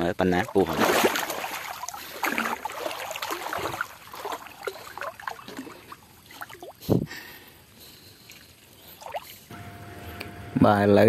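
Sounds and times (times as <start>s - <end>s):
water dripping and trickling: 0.2s - 6.9s, 8.2s - 9.5s
water splashing off net: 0.4s - 6.8s.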